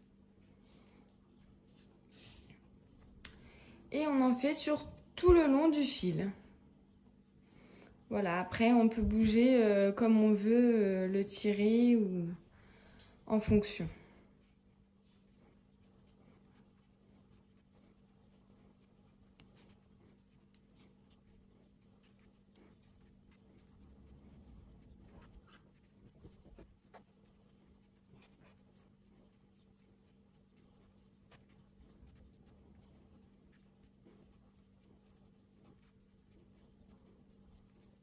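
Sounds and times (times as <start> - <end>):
crochet hook rubbing yarn: 0.0 - 4.7, 15.0 - 38.0
low steady hum: 0.0 - 38.0.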